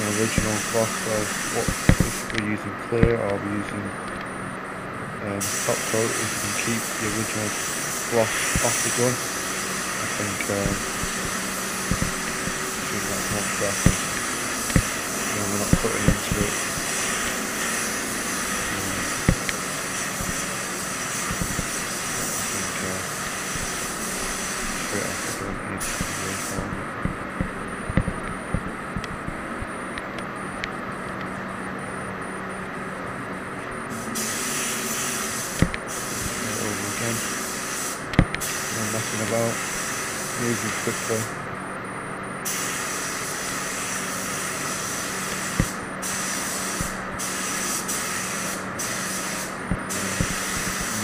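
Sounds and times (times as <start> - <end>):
paint spray gun hissing: 0.0 - 2.4, 5.4 - 26.8, 34.0 - 40.3, 42.5 - 51.0
steady low hum: 0.0 - 51.0.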